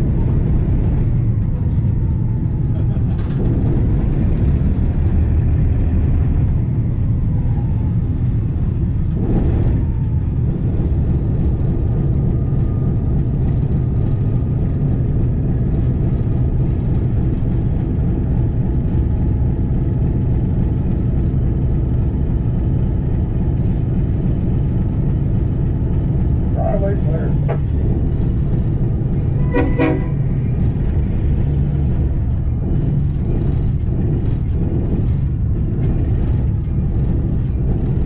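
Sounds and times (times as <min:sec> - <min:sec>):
diesel locomotive engine rumbling: 0:00.0 - 0:38.0.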